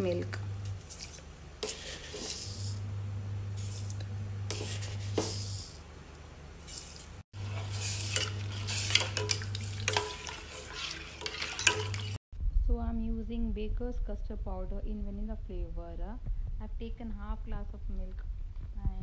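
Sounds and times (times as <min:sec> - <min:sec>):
ladle scraping a steel pot: 0:00.8 - 0:02.7, 0:03.6 - 0:05.6, 0:06.7 - 0:12.2
low hum: 0:02.3 - 0:06.6, 0:11.2 - 0:19.0.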